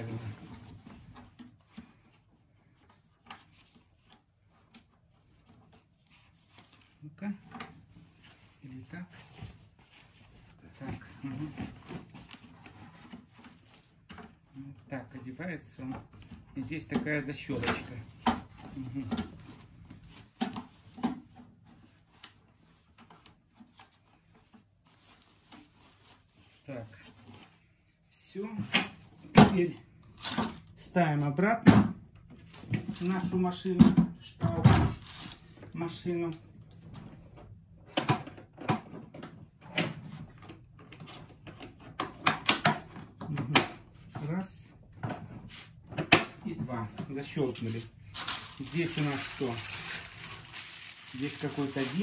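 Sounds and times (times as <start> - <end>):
filter bag rustling: 47.2 - 52.0.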